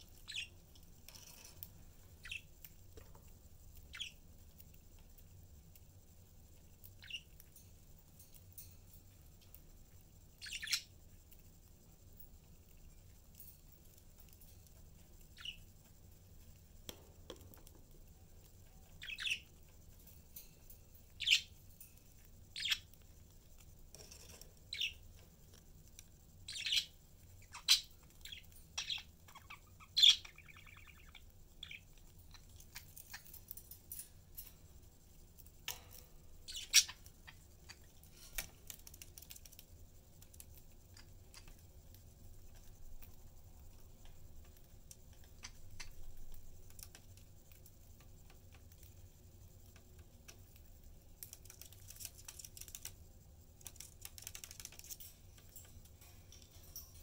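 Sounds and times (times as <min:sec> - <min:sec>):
budgerigars chirping: 0:03.9 - 0:04.2, 0:07.0 - 0:07.3, 0:10.4 - 0:10.9, 0:15.4 - 0:15.7, 0:19.0 - 0:19.5, 0:21.2 - 0:21.5, 0:22.6 - 0:22.9, 0:26.5 - 0:33.2, 0:36.5 - 0:37.8.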